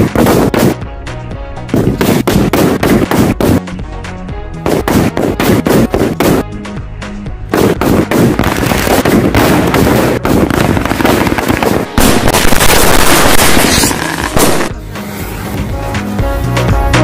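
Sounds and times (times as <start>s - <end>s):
firecrackers crackling: 1.7s - 3.6s, 4.7s - 6.4s, 7.5s - 15.5s.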